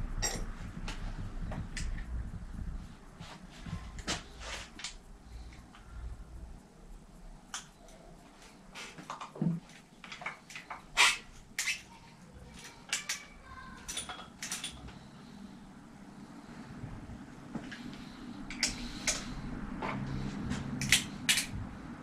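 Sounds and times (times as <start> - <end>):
tools clicking and knocking on bicycle: 0.2 - 2.2, 8.8 - 11.9, 12.5 - 15.1, 17.5 - 21.6.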